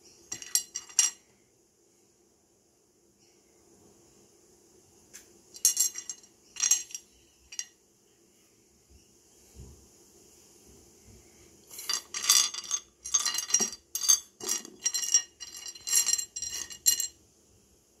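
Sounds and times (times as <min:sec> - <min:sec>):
stones clinking and clattering: 0:11.7 - 0:17.1.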